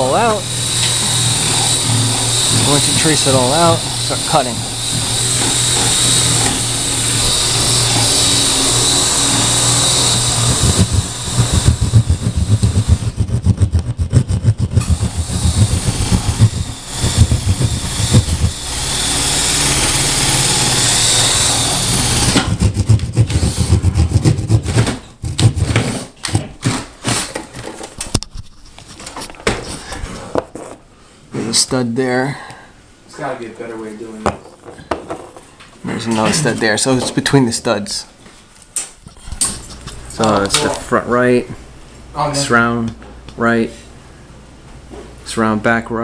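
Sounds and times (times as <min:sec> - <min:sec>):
saw cutting drywall: 0:00.0 - 0:27.7.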